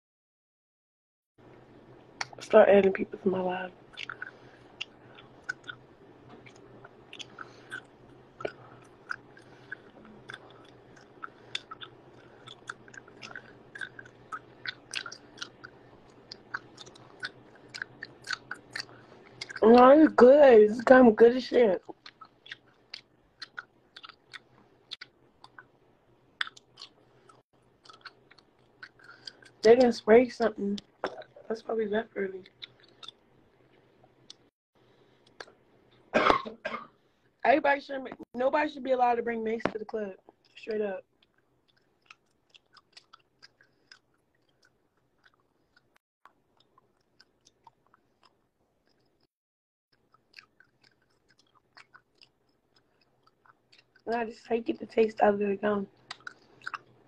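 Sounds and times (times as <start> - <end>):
gum chewing smacks: 3.9 - 19.6, 21.8 - 25.8, 26.4 - 29.6, 30.8 - 31.4, 32.4 - 34.5, 35.2 - 35.6, 41.2 - 49.3, 50.0 - 54.1, 56.0 - 57.0.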